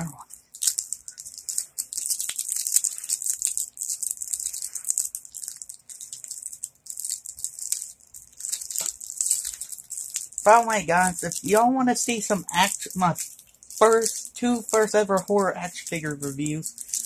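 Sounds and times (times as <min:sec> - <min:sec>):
plastic packaging crinkling: 0:00.0 - 0:17.0.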